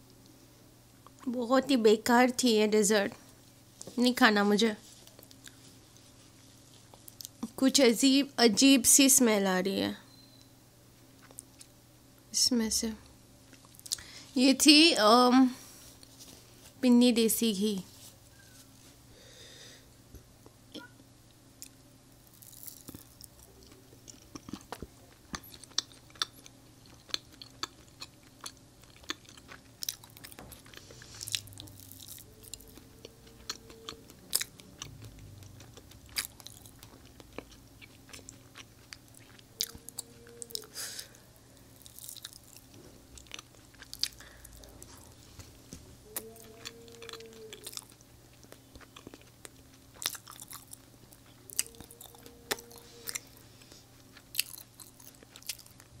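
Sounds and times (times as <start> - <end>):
close chewing with mouth clicks: 5.0 - 7.6, 11.1 - 11.8, 21.6 - 56.0.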